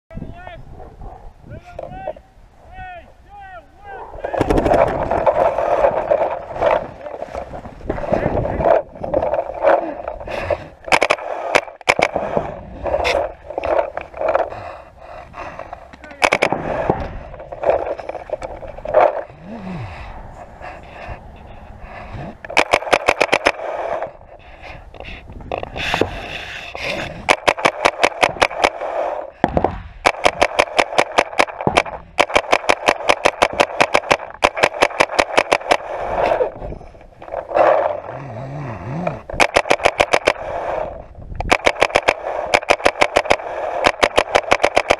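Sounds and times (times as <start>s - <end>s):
paintball marker firing: 10.8s - 12.5s, 16.1s - 16.9s, 22.5s - 23.9s, 27.0s - 36.0s, 39.3s - 44.9s.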